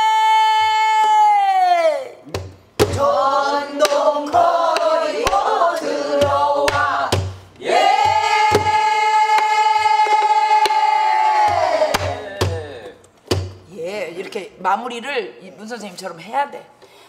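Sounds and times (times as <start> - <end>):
voices singing together: 2.8 - 13.0.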